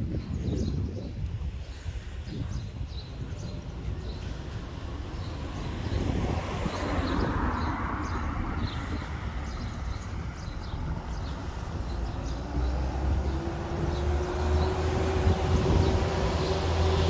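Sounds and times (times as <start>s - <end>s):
approaching engine: 4.8s - 17.0s.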